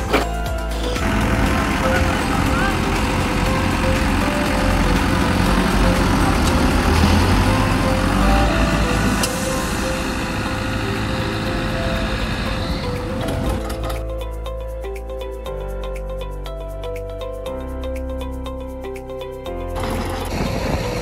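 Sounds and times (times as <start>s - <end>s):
tractor diesel engines under load: 0.0s - 14.4s, 19.8s - 21.0s.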